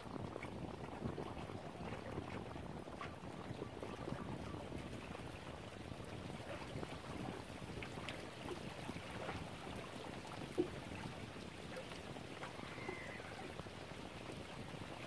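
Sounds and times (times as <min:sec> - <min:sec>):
small waves lapping: 0:00.0 - 0:15.0.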